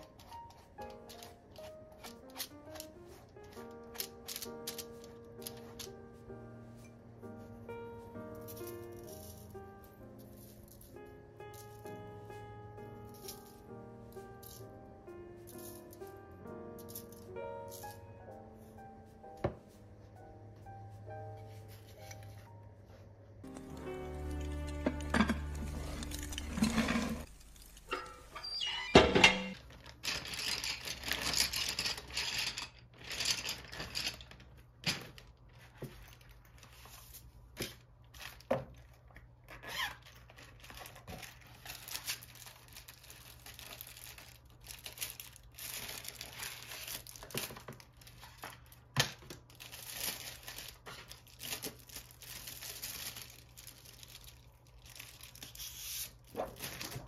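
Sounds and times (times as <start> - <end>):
plastic sheets rustling: 0.0 - 6.8, 24.5 - 28.3, 29.4 - 57.0.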